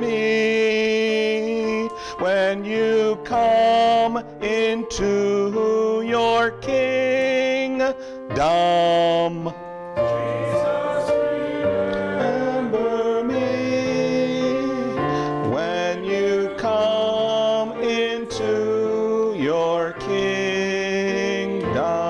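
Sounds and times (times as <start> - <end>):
church chant long held notes: 10.1 - 22.0.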